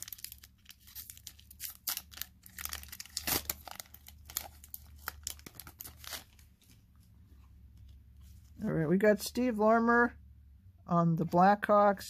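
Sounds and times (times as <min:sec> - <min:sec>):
foil wrapper tearing and crinkling: 0:00.0 - 0:06.5.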